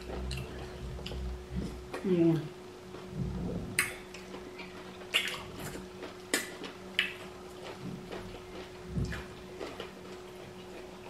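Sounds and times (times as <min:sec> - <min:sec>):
lip smacks and chewing: 0:03.8 - 0:11.0.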